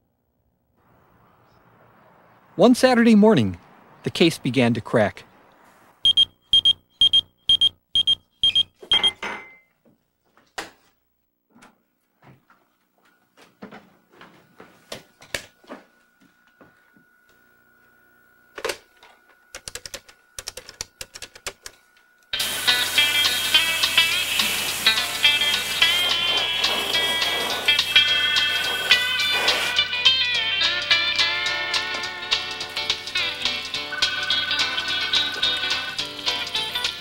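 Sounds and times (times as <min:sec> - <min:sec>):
electronic beeper pips: 0:06.0 - 0:09.2
computer keyboard typing: 0:19.6 - 0:21.7
music: 0:22.4 - 0:37.0.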